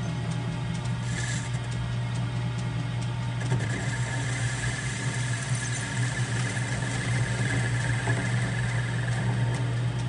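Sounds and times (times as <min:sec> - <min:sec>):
lathe motor hum: 0:00.0 - 0:02.6, 0:03.4 - 0:10.0
high-pitched cutting squeal: 0:03.6 - 0:09.4.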